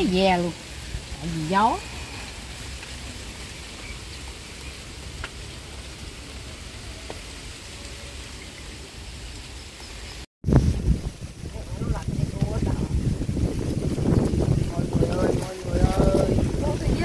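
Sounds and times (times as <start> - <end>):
wind hissing through grass: 0.0 - 17.0
wind buffeting microphone: 10.4 - 17.0.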